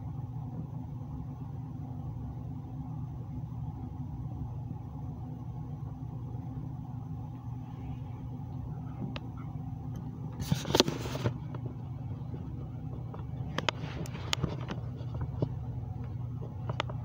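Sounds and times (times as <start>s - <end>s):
steady low hum: 0.0s - 17.0s
photo print scraping rustle: 10.3s - 11.7s, 13.5s - 15.6s
light clicks and taps: 10.7s - 17.0s.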